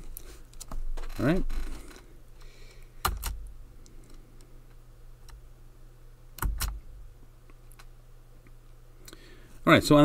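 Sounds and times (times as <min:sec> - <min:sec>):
faint low hum: 0:00.0 - 0:10.0
sharp computer clicks: 0:06.4 - 0:06.8.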